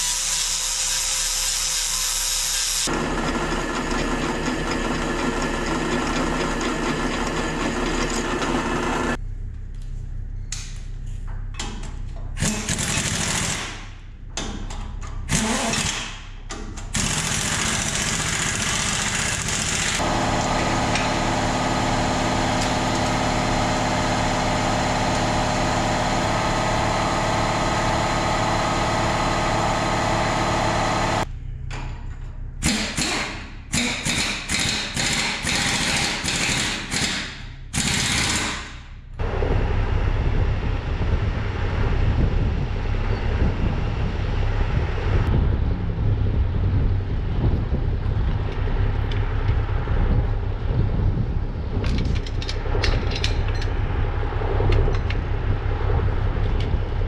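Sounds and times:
angle grinder cutting steel: 0.0s - 2.9s
steady machine noise: 0.0s - 9.5s, 12.4s - 14.3s, 16.9s - 31.6s, 32.5s - 57.0s.

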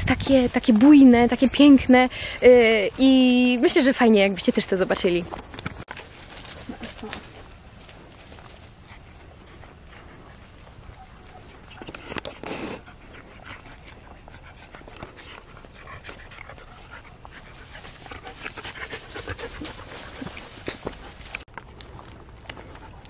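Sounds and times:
dog panting: 8.4s - 21.5s.

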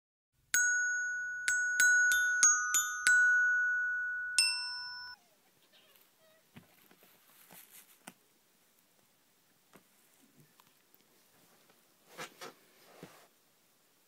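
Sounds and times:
bell-like jingle: 0.6s - 5.2s.

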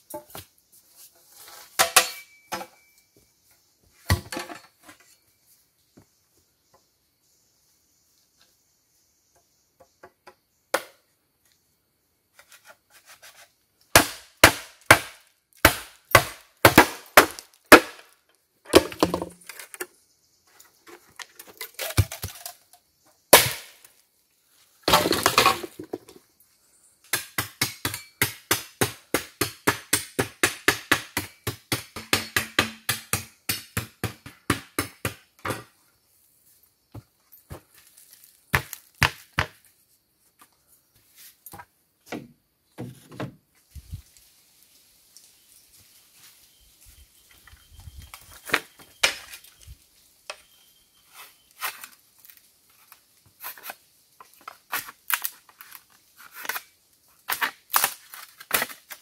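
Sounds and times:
bamboo being chopped: 10.7s - 11.0s, 12.4s - 19.5s, 23.3s - 23.9s, 27.0s - 35.7s, 38.0s - 39.7s, 57.3s - 59.0s
bamboo crunching splits: 54.4s - 59.0s.

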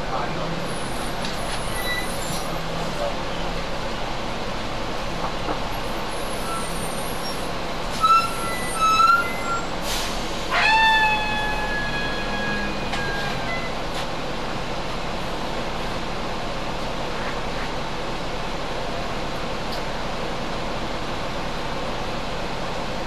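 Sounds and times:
bus air brakes squealing: 0.7s - 2.6s, 6.0s - 13.8s.

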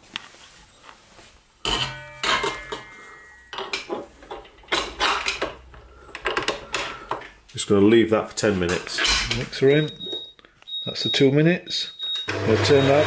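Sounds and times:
metal clanks and clicks: 1.6s - 7.4s.

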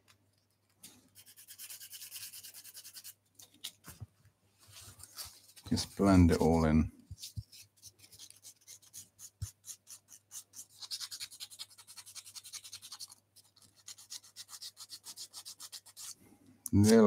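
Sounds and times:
sandpaper rubbing wood: 1.2s - 3.2s, 7.2s - 16.2s.

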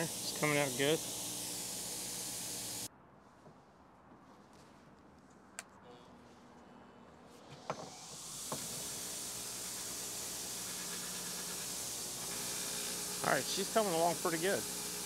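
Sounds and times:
wire wheel grinder whirring: 0.0s - 2.9s, 7.9s - 15.0s.

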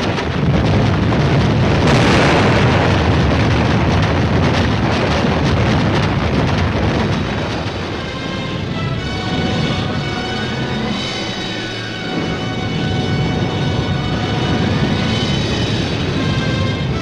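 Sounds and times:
gunfire cracks: 0.0s - 8.1s
rumble of explosions: 0.0s - 17.0s.

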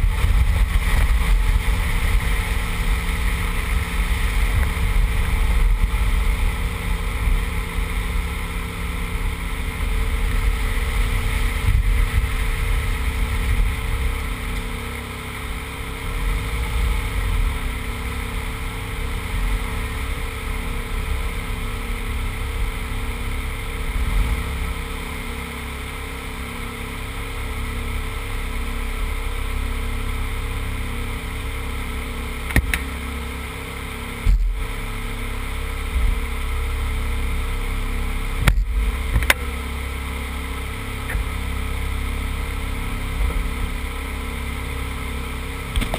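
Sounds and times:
wind rumble on microphone: 0.0s - 14.9s
car engine at low revs: 0.0s - 45.9s.

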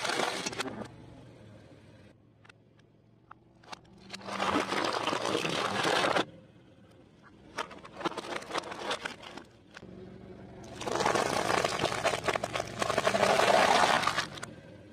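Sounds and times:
foil tray crunching under tyre: 7.6s - 9.5s.

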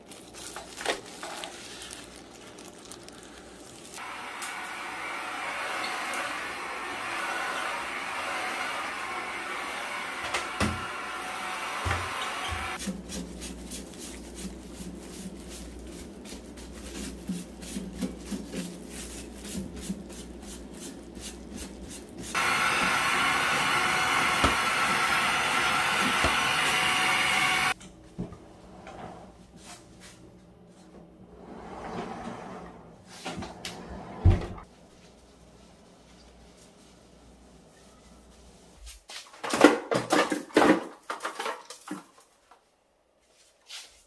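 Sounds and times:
stick vacuum running: 4.0s - 12.8s, 22.4s - 27.8s.

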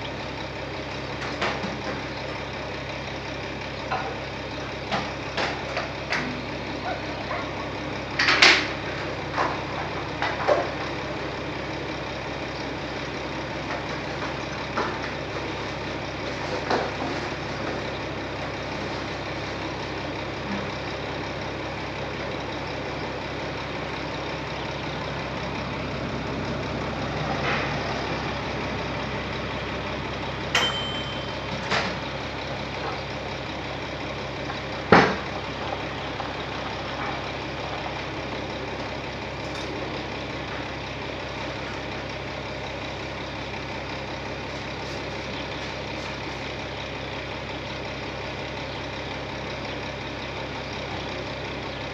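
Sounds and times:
diesel engine idling: 0.0s - 51.9s
sharp metallic knocks: 30.6s - 32.0s.

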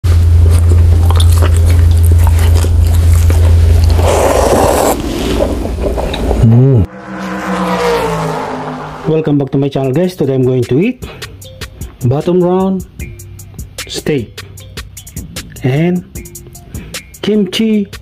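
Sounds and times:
heavy low rumble: 0.1s - 9.5s
chewing with wet mouth clicks: 0.5s - 4.2s
slurping noodles: 0.5s - 6.6s
swooping tone into musical chord: 6.7s - 9.4s.

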